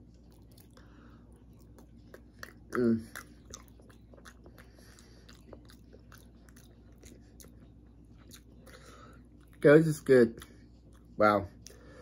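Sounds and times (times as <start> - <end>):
person chewing with mouth closed: 0.1 - 9.6.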